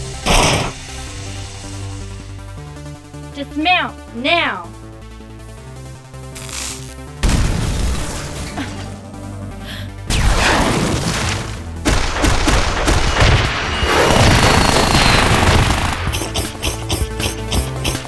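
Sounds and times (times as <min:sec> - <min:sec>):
blast: 0:10.1 - 0:16.1
rapid gunfire-like rattling: 0:11.9 - 0:18.0
rhythmic music: 0:16.1 - 0:18.0.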